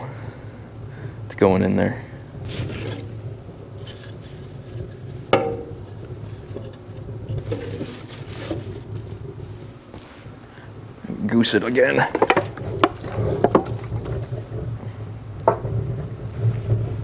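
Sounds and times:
boards knocking and scraping in stove: 2.4 - 10.1, 11.9 - 17.0.

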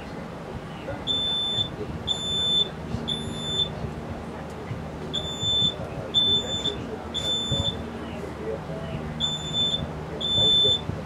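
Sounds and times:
smoke alarm beeping: 1.1 - 3.8, 5.2 - 7.8, 9.2 - 10.9.

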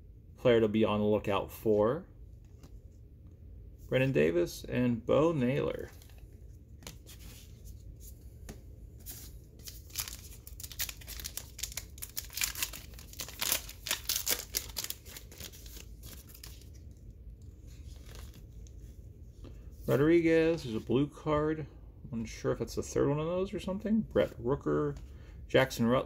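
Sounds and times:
crinkly wrapper tearing: 9.6 - 16.8.

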